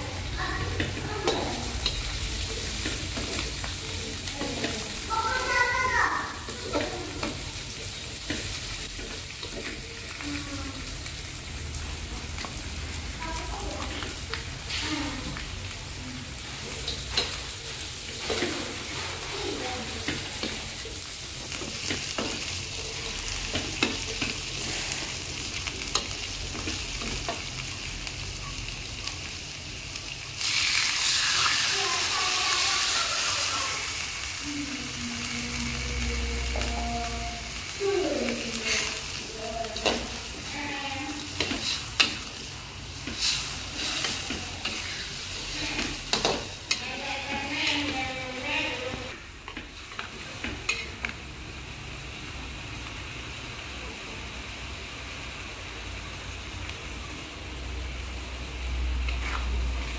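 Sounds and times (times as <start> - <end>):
beans sizzling in a wok: 0.0 - 59.9
metal spatula scraping wok: 38.5 - 51.0.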